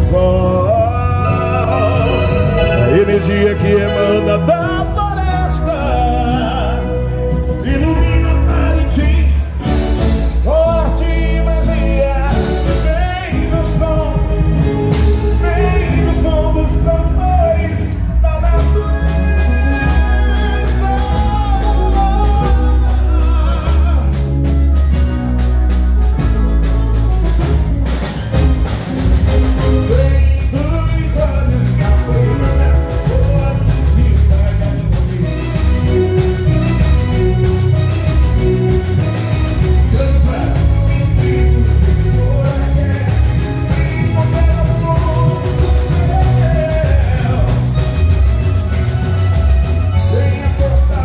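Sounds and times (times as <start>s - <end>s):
person singing: 0.0s - 25.0s, 29.6s - 48.8s
band with heavy bass beat: 0.0s - 51.0s.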